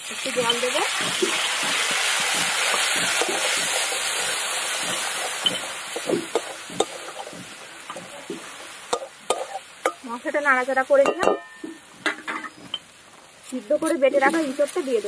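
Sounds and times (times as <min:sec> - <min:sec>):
water sizzling in hot oil: 0:00.0 - 0:15.0
spatula scraping pan: 0:00.4 - 0:09.7.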